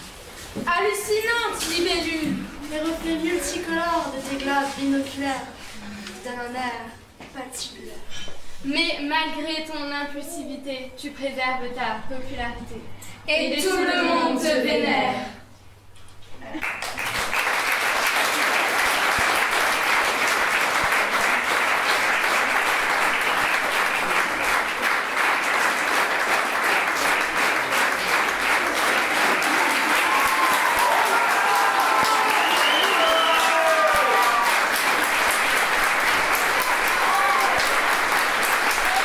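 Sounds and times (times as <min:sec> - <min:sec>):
audience applauding: 0:16.6 - 0:39.0
people cheering: 0:28.4 - 0:39.0.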